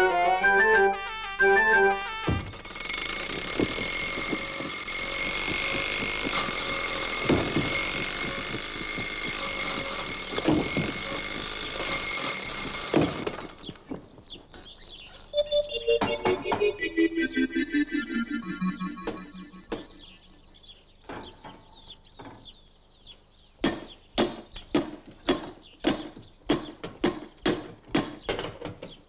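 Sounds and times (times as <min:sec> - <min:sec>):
music: 0:00.0 - 0:02.6, 0:15.4 - 0:20.4.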